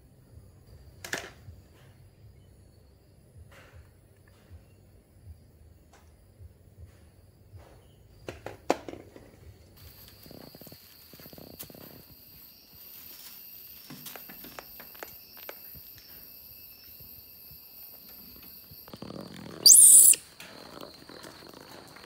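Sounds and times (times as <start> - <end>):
high-pitched animal squeal: 19.6 - 20.2.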